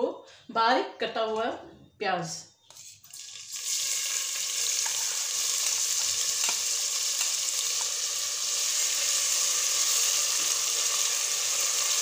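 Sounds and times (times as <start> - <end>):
spatula tapping and scraping: 2.7 - 3.1
onions sizzling in hot oil: 2.8 - 12.0.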